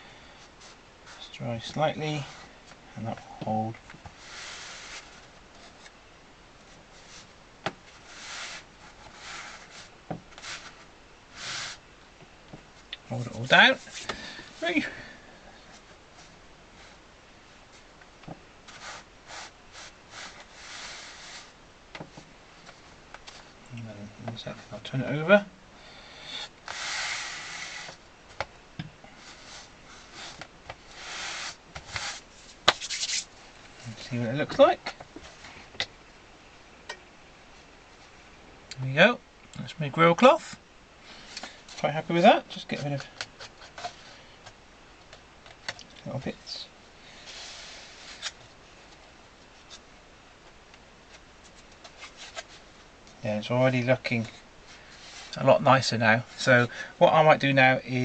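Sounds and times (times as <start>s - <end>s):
hands brushing cloth: 18.6s - 21.6s, 29.1s - 33.4s.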